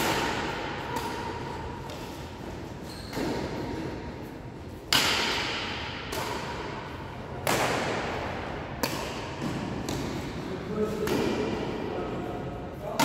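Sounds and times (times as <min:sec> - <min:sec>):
racket hitting shuttlecock: 0:00.0 - 0:11.8.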